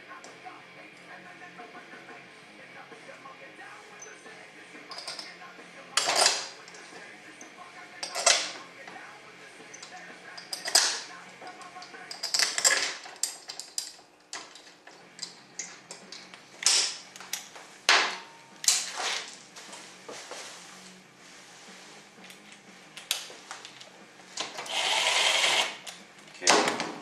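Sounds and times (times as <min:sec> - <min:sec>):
metal parts clacking on workbench: 0:04.9 - 0:05.4, 0:06.0 - 0:08.6, 0:09.7 - 0:19.4.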